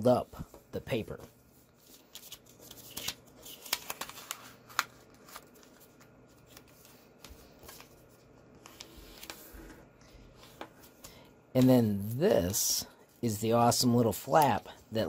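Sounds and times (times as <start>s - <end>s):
paper rustling and crinkling: 1.4s - 11.1s.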